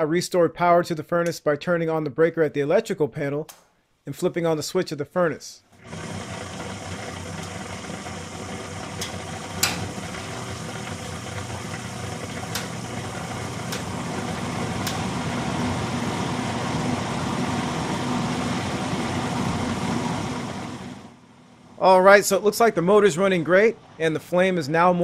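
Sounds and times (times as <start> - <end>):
furnace blower humming: 5.8 - 25.0.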